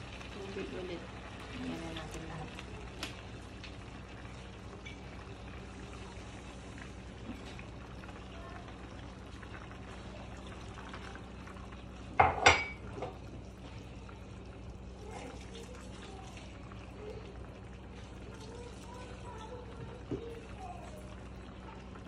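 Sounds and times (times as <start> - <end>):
pan simmering with low hiss: 0.0 - 22.0
metal kitchenware clattering: 12.2 - 12.8.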